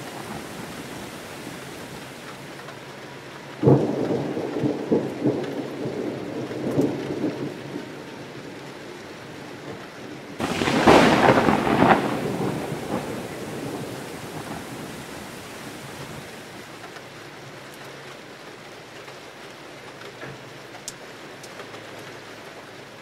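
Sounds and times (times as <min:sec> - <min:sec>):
crackling thunderclap: 0:00.0 - 0:02.6, 0:03.6 - 0:08.0, 0:10.4 - 0:16.9
rain hissing: 0:00.0 - 0:07.4, 0:10.4 - 0:17.0.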